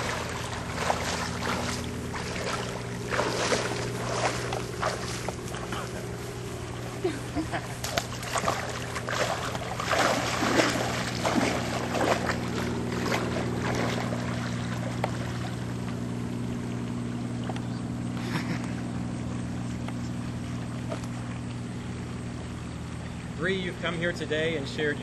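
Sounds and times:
water splashing and sloshing: 0:00.0 - 0:22.4
low hum: 0:00.0 - 0:25.0.

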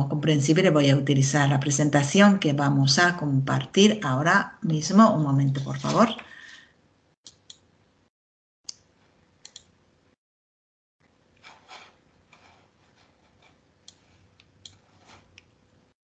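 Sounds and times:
mouse and keyboard clicks: 0:09.4 - 0:09.7.

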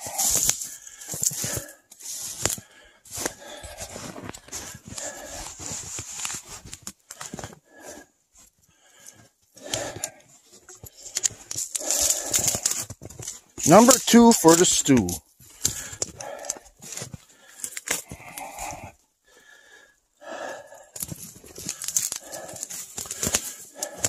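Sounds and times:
twigs rustling against clothing: 0:10.4 - 0:13.9.

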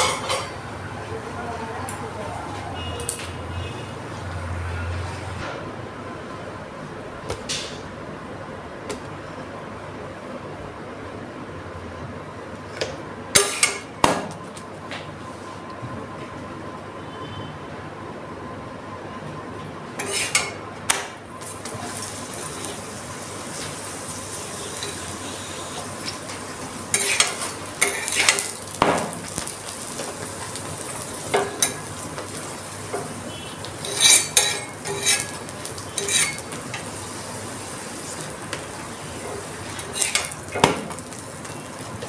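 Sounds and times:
metal spatula scraping a pan: 0:20.0 - 0:20.6, 0:26.9 - 0:28.6, 0:33.8 - 0:36.5, 0:39.7 - 0:40.4
flatbread sizzling on a pan: 0:21.4 - 0:42.0.

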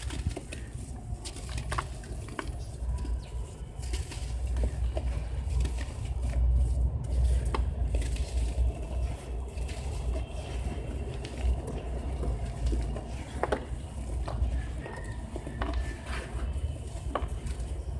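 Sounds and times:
hands crunching dry sand: 0:00.0 - 0:17.9.

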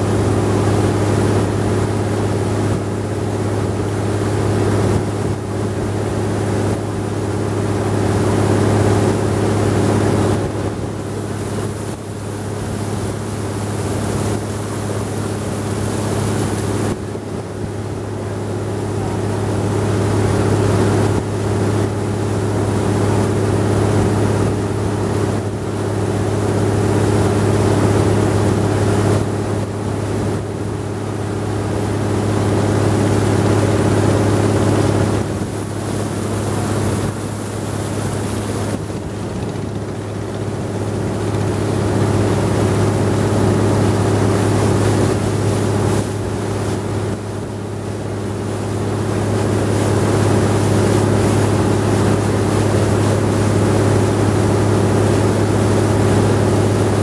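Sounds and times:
boat engine droning: 0:00.0 - 0:57.0
rushing water: 0:00.0 - 0:57.0
wind: 0:00.0 - 0:57.0.

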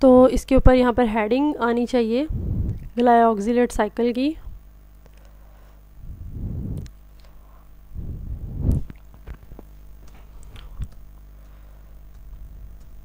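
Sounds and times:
faint steady hum: 0:00.0 - 0:13.0
low rumble: 0:02.3 - 0:02.9, 0:06.0 - 0:06.9, 0:07.9 - 0:09.0.

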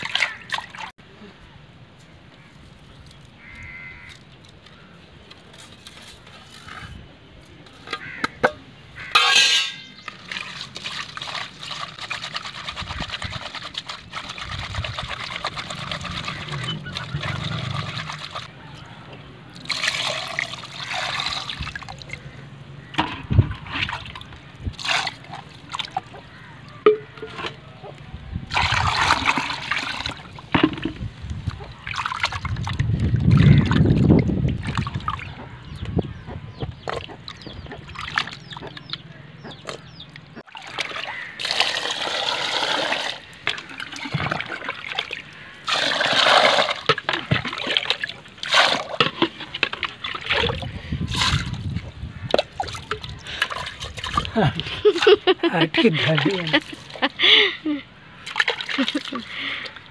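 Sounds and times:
water sloshing: 0:00.0 - 0:00.9, 0:09.0 - 0:18.7, 0:19.5 - 0:57.3, 0:58.1 - 0:59.9
hands scrubbing pot with salt: 0:09.2 - 0:18.5.

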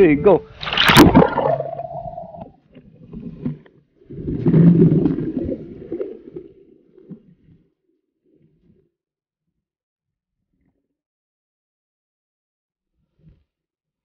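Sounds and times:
muffled underwater bubbling: 0:00.4 - 0:07.6
splash into water: 0:00.6 - 0:02.5.

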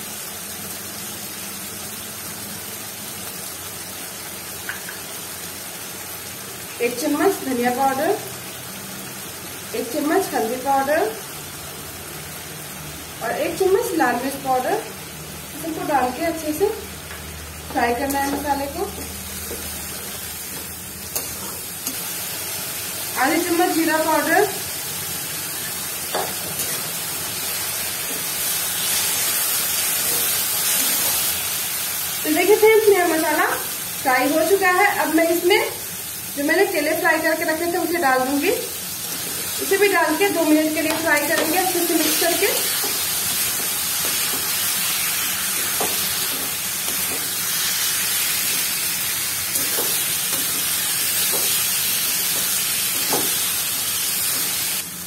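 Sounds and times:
masala sizzling in a pan: 0:00.0 - 0:55.0
spatula stirring: 0:49.5 - 0:51.6.

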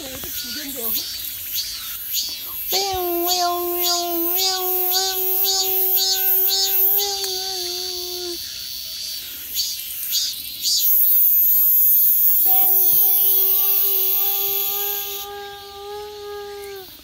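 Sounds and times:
cicadas buzzing: 0:00.0 - 0:17.0
person singing a steady note: 0:02.7 - 0:08.4, 0:12.4 - 0:17.0.

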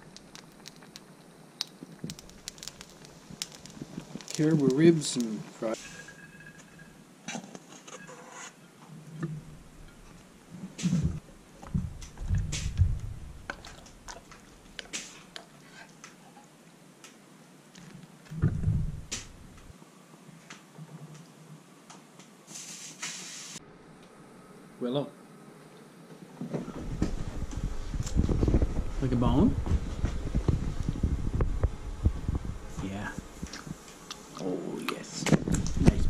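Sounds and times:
dull thumps: 0:10.8 - 0:13.7, 0:18.3 - 0:19.7.

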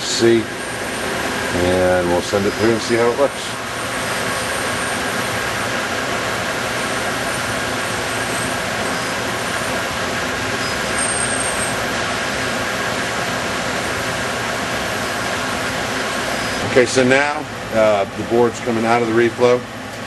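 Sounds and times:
oven fans and belt drive rushing: 0:00.0 - 0:20.0.

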